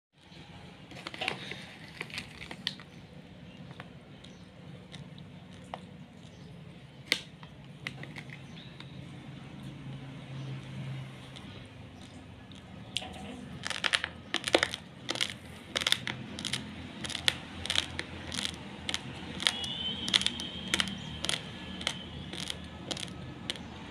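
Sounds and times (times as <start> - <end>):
rice grains crunching when chewed: 13.5 - 23.7.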